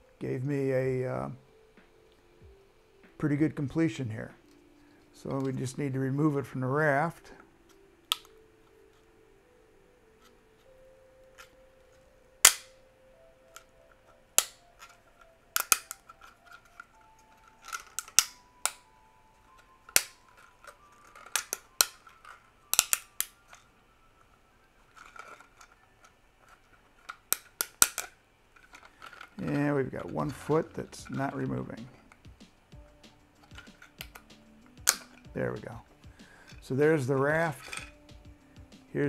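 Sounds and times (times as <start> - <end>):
plastic snapping and cracking: 12.4 - 12.8, 14.3 - 18.9, 19.5 - 23.6, 26.5 - 29.6, 31.8 - 36.6.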